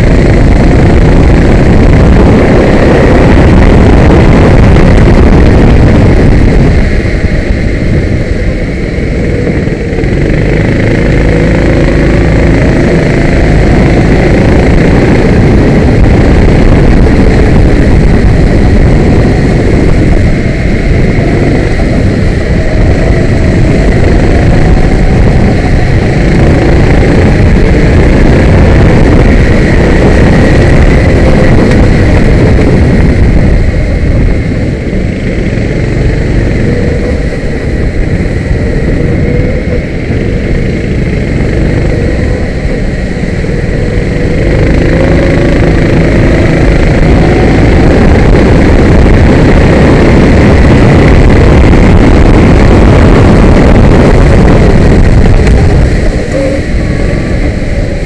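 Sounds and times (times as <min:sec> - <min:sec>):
kart engine revving: 0:00.0 - 0:58.0
wind noise on microphone: 0:00.0 - 0:58.0.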